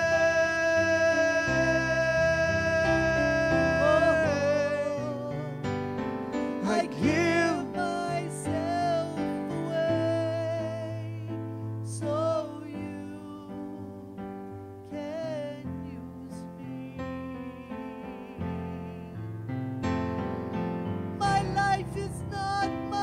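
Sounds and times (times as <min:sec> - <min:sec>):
person singing long notes: 0:00.0 - 0:05.6
sustained keyboard chords: 0:00.0 - 0:23.0.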